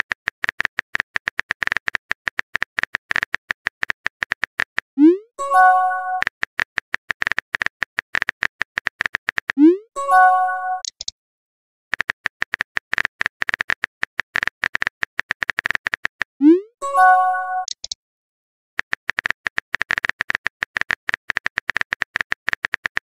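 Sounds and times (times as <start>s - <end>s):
keyboard typing clicks: 0.4s - 11.1s, 11.9s - 18.0s.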